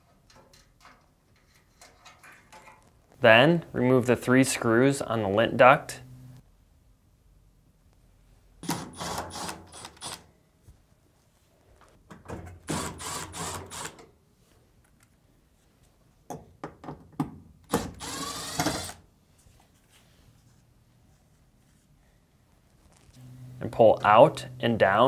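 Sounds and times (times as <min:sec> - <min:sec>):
cordless driver whirring: 0:17.9 - 0:19.0.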